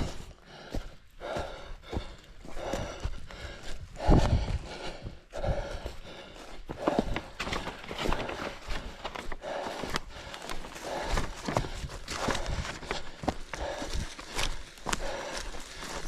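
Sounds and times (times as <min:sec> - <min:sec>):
man breathing heavily: 0:00.0 - 0:16.0
runner's footfalls: 0:06.5 - 0:16.0.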